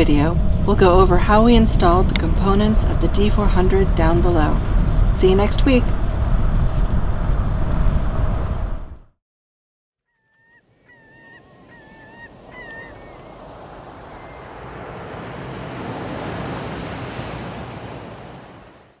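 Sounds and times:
wind: 0:00.0 - 0:09.0, 0:10.1 - 0:19.0
short bird calls: 0:10.1 - 0:14.8
sea waves washing: 0:10.6 - 0:19.0.

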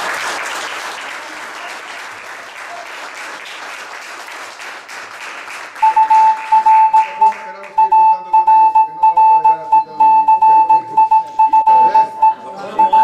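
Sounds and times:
small group applauding: 0:00.0 - 0:08.8
loud steady high tone: 0:05.8 - 0:13.0.

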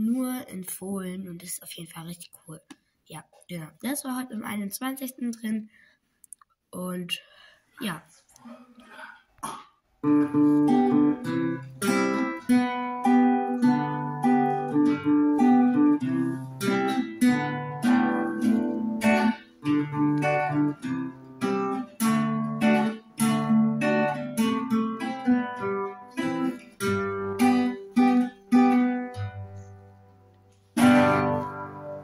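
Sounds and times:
acoustic guitar chords: 0:09.4 - 0:32.0.

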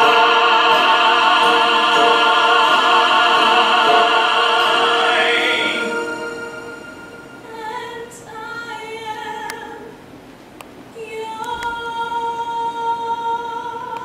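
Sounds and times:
voices singing sustained notes: 0:00.0 - 0:08.8.

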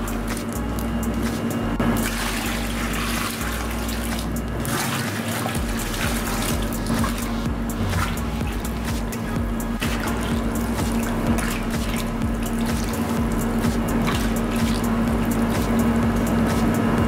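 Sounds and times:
steady low hum: 0:00.0 - 0:17.0
water pouring into a bowl: 0:02.0 - 0:07.3.

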